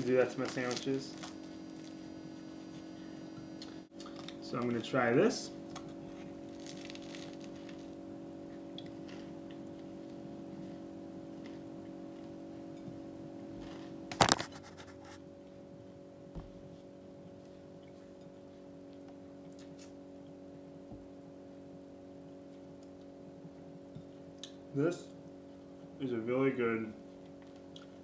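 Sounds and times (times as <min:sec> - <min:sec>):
low room hum: 0:00.0 - 0:28.0.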